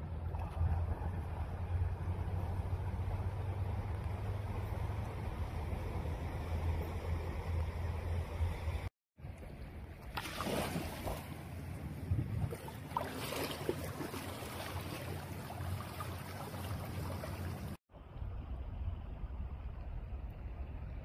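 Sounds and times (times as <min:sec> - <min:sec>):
wind rumble on microphone: 0:11.6 - 0:12.8
flood water rushing: 0:12.4 - 0:17.8.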